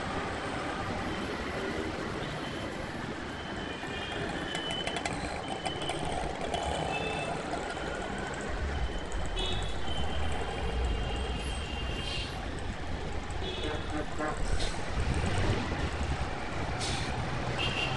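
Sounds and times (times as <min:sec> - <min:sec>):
street traffic noise: 0:00.0 - 0:17.9
heavy vehicle rumble: 0:14.1 - 0:17.4.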